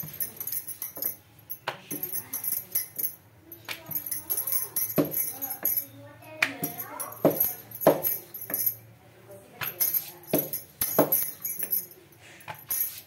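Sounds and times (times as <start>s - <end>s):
light metallic jingling: 0.0s - 13.0s.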